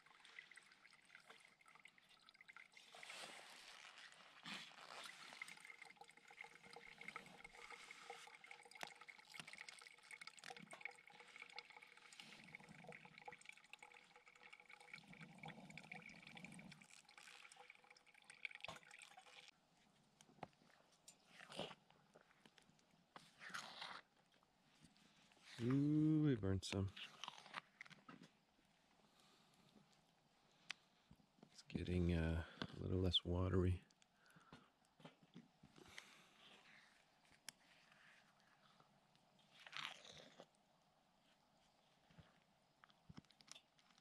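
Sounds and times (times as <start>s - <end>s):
porridge simmering with bubbling: 0.0s - 44.0s.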